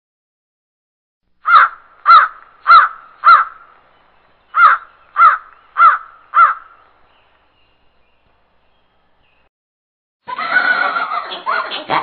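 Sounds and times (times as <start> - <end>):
crow cawing: 1.4 - 3.8, 4.5 - 6.8.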